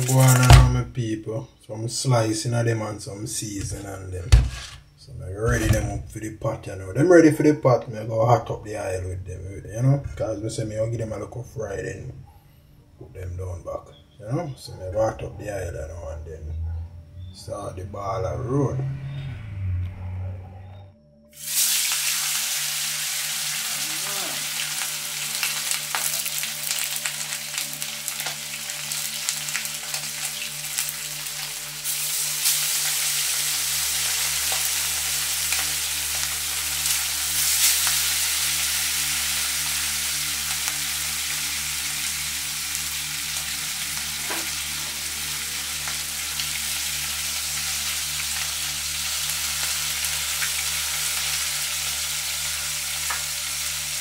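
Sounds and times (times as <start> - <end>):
fish sizzling in hot oil: 0.0 - 0.6, 21.3 - 54.0
oil popping and crackling: 0.0 - 0.8, 21.4 - 54.0.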